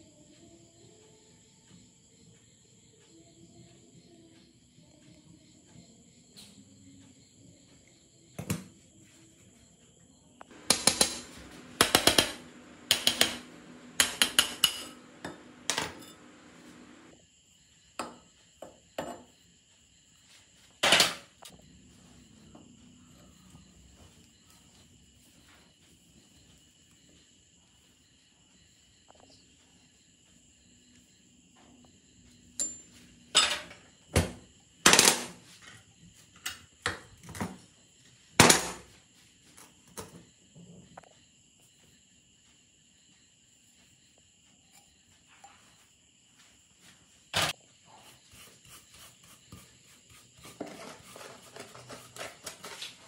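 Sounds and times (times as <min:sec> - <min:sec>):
faint high whine: 0:10.5 - 0:17.2.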